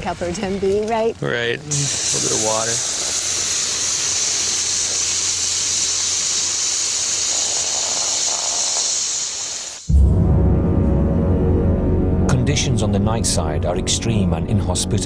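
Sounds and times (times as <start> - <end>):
water hissing on lava: 1.6 - 9.9.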